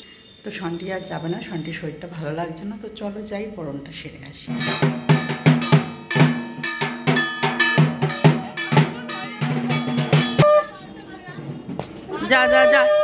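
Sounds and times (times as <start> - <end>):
metal percussion clanging: 4.5 - 10.7
drum beating: 4.5 - 13.0.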